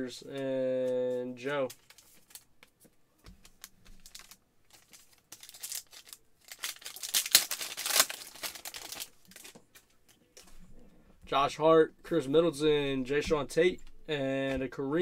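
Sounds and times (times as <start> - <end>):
trading cards clicking and rustling: 0.3 - 10.6
foil wrapper crinkling and tearing: 3.4 - 9.8.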